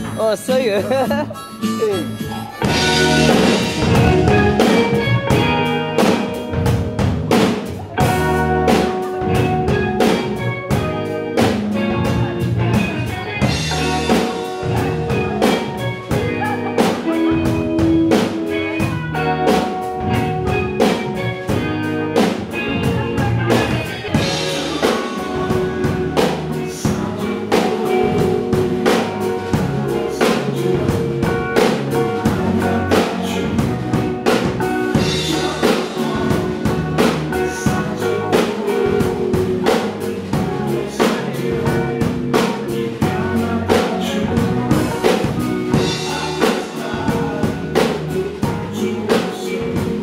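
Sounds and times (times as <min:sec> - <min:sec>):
drum kit beat: 0:00.0 - 0:50.0
electric guitars: 0:00.0 - 0:50.0
rock band playing live: 0:00.0 - 0:50.0.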